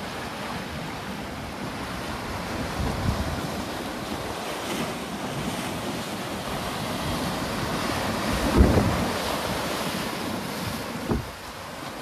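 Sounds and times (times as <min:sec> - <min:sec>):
sea waves breaking on beach: 0:00.0 - 0:12.0
wind buffeting microphone: 0:02.1 - 0:04.5, 0:06.6 - 0:11.5.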